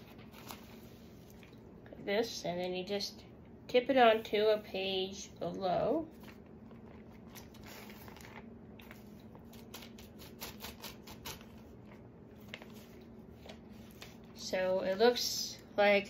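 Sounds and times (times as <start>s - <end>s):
magazine page rustling: 0.0s - 1.3s, 6.1s - 15.0s
faint steady hum: 0.0s - 16.0s.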